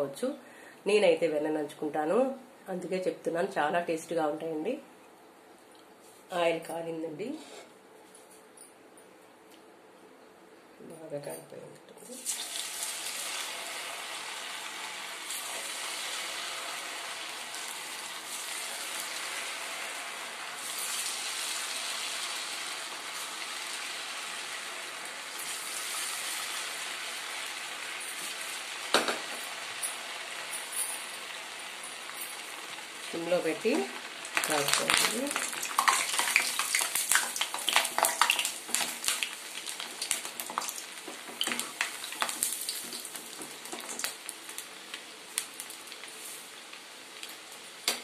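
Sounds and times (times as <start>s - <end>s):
fries sizzling in hot oil: 12.1s - 48.0s.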